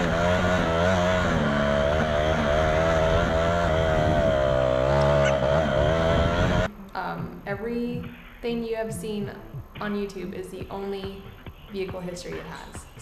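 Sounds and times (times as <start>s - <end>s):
dirt bike engine running: 0.0s - 6.7s.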